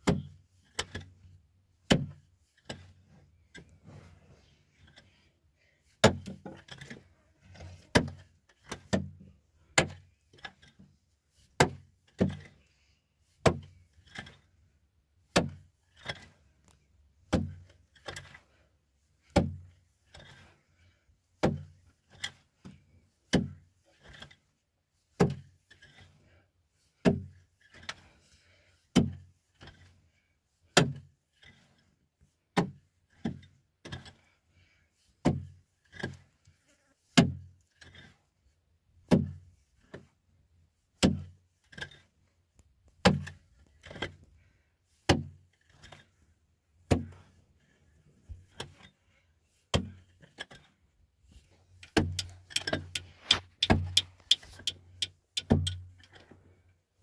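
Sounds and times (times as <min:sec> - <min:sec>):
sharp knocks: 0:51.9 - 0:55.8.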